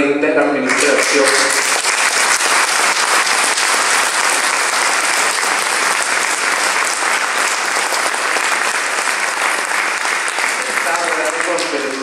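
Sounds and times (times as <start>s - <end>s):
congregation applauding: 0.6s - 12.0s.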